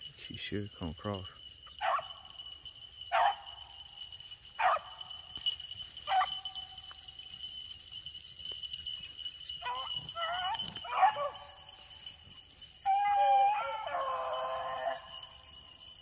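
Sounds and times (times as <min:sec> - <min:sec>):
beagles baying: 0:01.6 - 0:07.1, 0:08.4 - 0:15.8.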